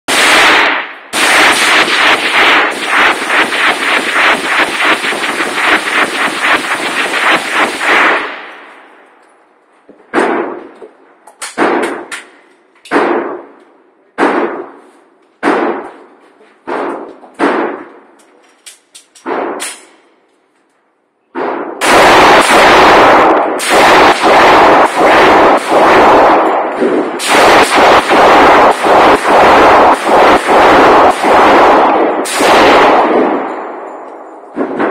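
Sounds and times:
rapid pistol gunfire: 0.1 - 9.0, 10.1 - 10.7, 11.4 - 12.3, 12.9 - 13.5, 14.2 - 14.8, 15.4 - 16.0, 16.7 - 17.9, 19.2 - 19.8, 21.4 - 34.9
single gunshots echoing: 14.2 - 14.8, 21.4 - 34.9.

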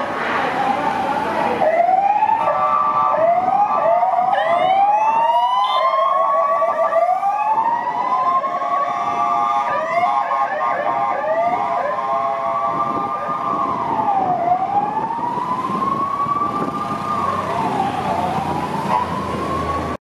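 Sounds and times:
passing vehicle engines and tyres: 0.0 - 5.6, 10.9 - 20.0
police sirens wailing: 0.0 - 20.0.

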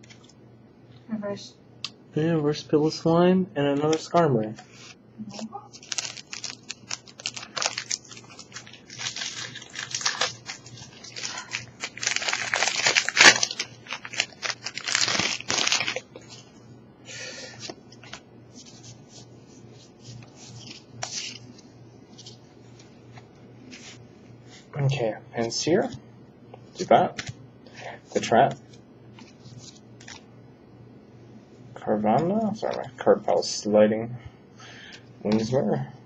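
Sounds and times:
foil wrapper crinkling and tearing: 5.7 - 16.5, 20.2 - 22.9.

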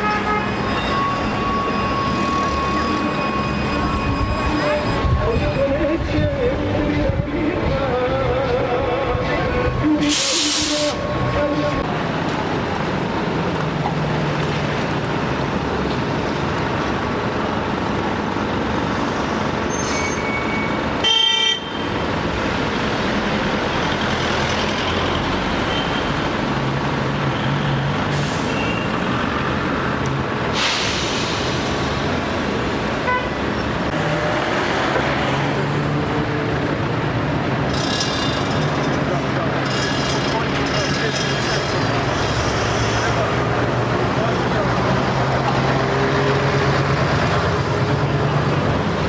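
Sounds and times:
city street traffic: 0.0 - 49.0
vehicle horn toot: 19.7 - 21.9, 33.0 - 33.3.

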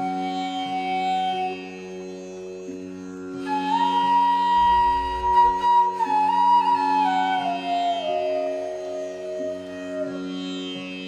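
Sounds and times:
flute melody: 0.0 - 2.1, 3.4 - 11.0
steady drone: 2.8 - 10.1.

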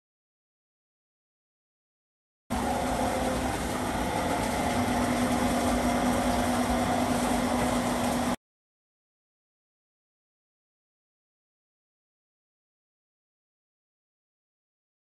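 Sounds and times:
laundry machine motor humming: 2.5 - 8.4
soapy water draining: 2.5 - 8.4.

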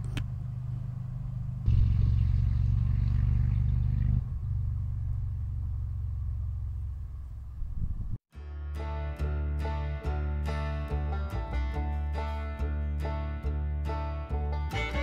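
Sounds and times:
tractor engine droning: 0.0 - 8.2.

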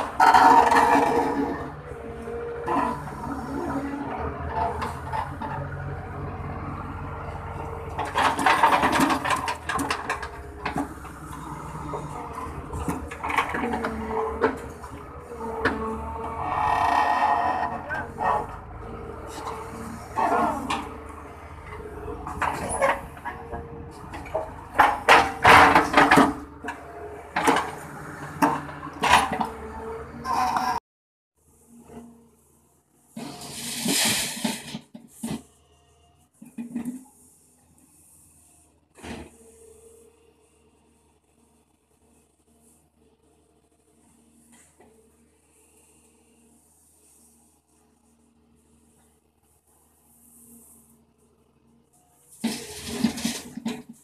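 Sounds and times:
excavator diesel engine running: 0.0 - 30.8
bucket scraping earth: 33.1 - 35.6, 52.3 - 54.0.

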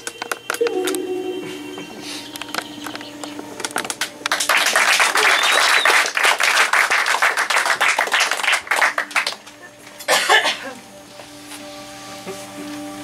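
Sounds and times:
faint music: 0.0 - 13.0
audience applauding: 3.8 - 9.6.

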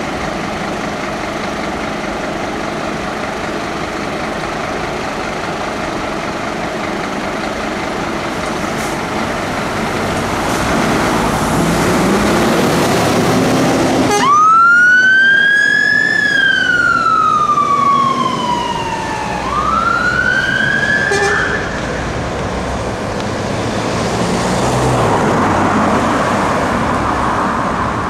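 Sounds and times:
fire engines driving away: 0.0 - 28.0
fire engine siren wailing: 7.9 - 22.4.

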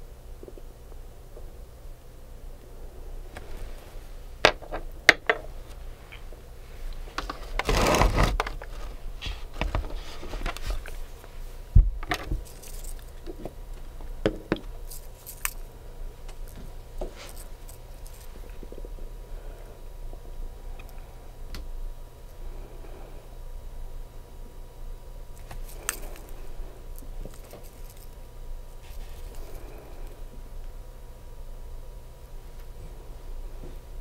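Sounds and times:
scraping rustle: 5.6 - 11.6, 12.2 - 13.2, 16.4 - 18.7, 25.4 - 30.2.

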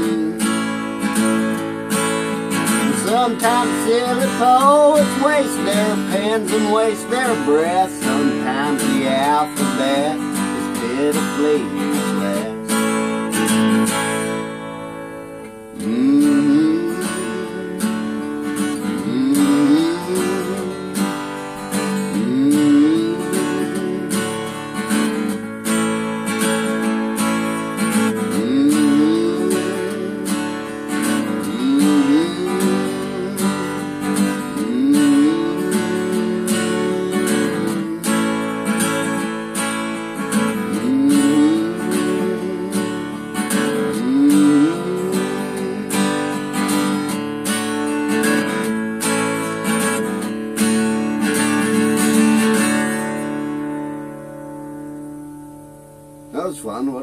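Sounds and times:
person humming: 0.0 - 0.6, 15.8 - 24.6, 28.2 - 38.4, 40.6 - 46.4
acoustic guitar strumming: 0.0 - 57.0.

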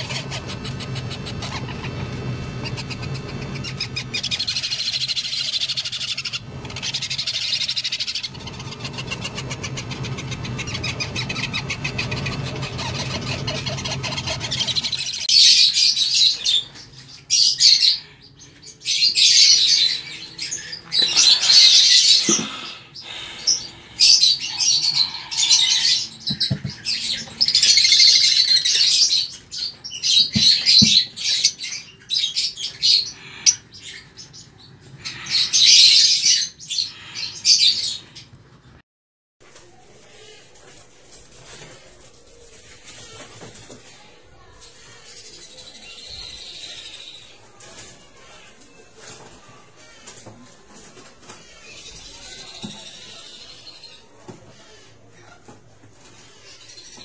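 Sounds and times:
lovebirds chirping and squawking: 0.0 - 38.8, 39.6 - 57.0.

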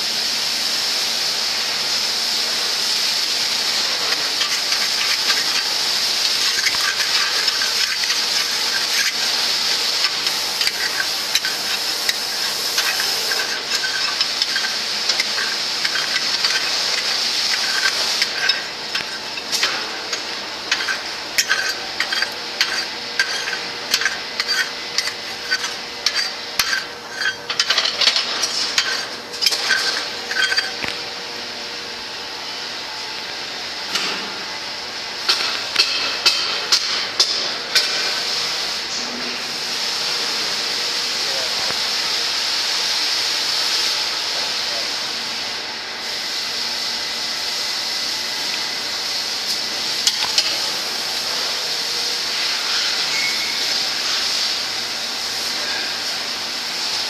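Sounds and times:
steady hiss: 0.0 - 27.6
steel bars scraping dross: 4.0 - 31.0.

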